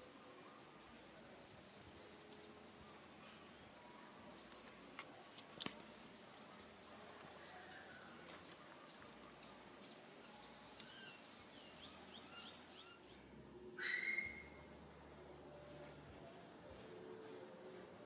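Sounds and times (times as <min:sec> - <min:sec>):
high-pitched chirping calls: 0:13.8 - 0:14.6.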